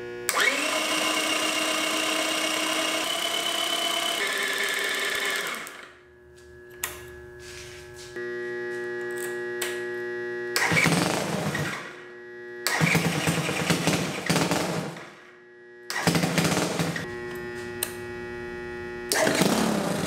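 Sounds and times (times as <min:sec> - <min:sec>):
engine idling and revving: 0:10.6 - 0:12.0, 0:12.6 - 0:15.3, 0:15.9 - 0:17.6, 0:19.1 - 0:20.0.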